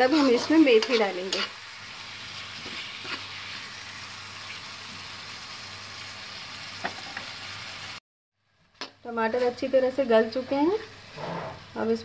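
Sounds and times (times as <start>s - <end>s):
metal spatula stirring: 0.0s - 1.6s
food sizzling in oil: 0.0s - 8.0s, 9.1s - 12.0s.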